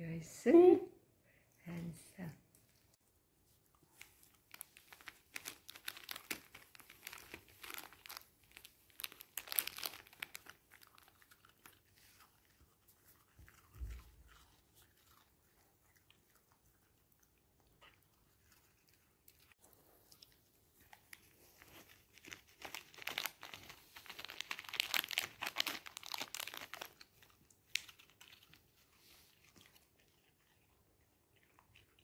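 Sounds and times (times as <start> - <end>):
paper wrapper crinkling: 3.8 - 12.7, 20.8 - 29.8
dog crunching dry food: 4.0 - 16.9, 20.9 - 28.7.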